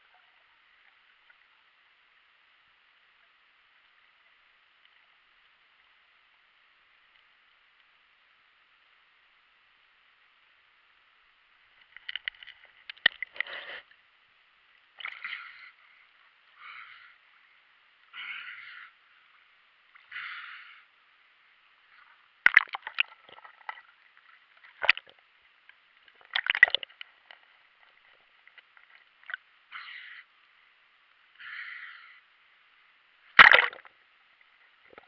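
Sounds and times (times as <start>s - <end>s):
soft water swishes: 0.0s - 31.5s
sharp splashes and knocks: 22.4s - 23.8s, 26.2s - 26.9s, 33.4s - 33.9s
muffled water sloshing: 33.4s - 33.9s.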